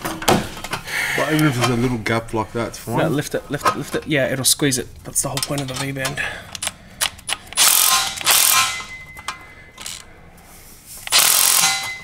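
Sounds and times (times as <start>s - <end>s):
power gun driving bolts: 6.6s - 9.0s, 9.8s - 10.0s, 11.0s - 12.0s.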